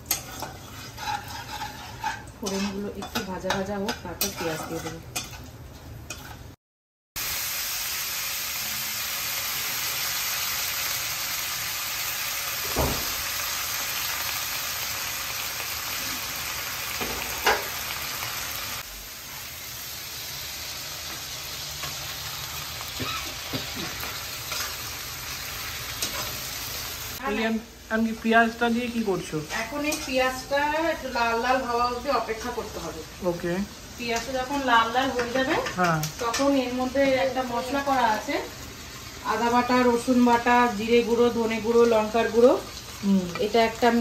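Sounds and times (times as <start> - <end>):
metal spatula scraping pan: 0.0 - 5.5
onions sizzling in oil: 0.0 - 6.5, 7.2 - 44.0.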